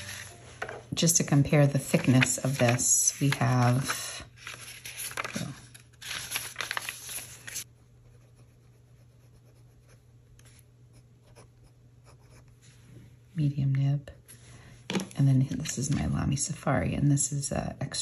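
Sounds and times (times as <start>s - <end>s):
notebook pages rustling: 0.0s - 0.8s, 1.4s - 7.7s.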